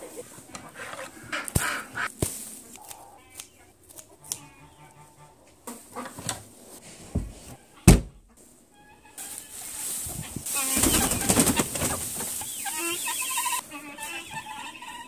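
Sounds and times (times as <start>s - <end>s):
ducks quacking and honking: 0.0s - 2.2s, 2.8s - 6.4s, 7.5s - 15.0s
knocks and handling noise: 6.0s - 8.4s
loud thump: 7.2s - 8.3s.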